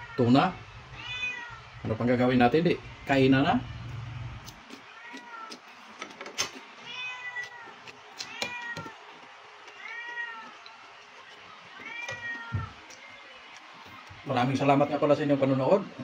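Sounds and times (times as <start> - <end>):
cat meowing: 0.9 - 1.7, 4.9 - 5.6, 6.8 - 9.0, 9.8 - 10.8, 11.8 - 12.8.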